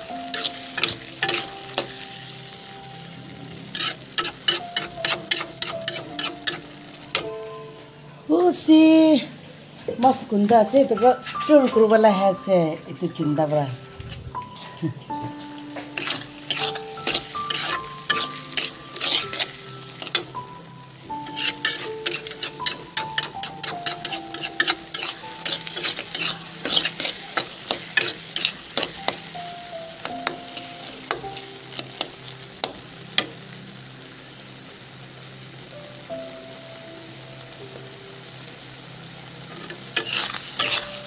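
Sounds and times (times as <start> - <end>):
food sizzling: 0.0 - 41.0
soft background music: 0.0 - 41.0
utensil scraping metal pan: 0.3 - 1.9, 3.7 - 7.2, 15.8 - 20.3, 21.2 - 29.0, 39.6 - 41.0.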